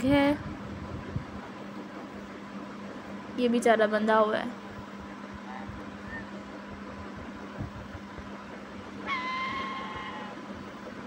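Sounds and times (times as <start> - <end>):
constant low hum: 0.0 - 11.0
high pitched call: 9.0 - 10.4.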